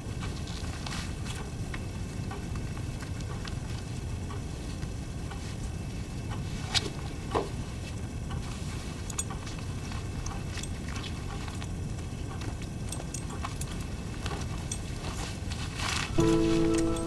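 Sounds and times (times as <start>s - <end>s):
belt buckle clinking: 9.1s - 9.3s, 12.4s - 15.2s
low hum: 15.9s - 17.0s.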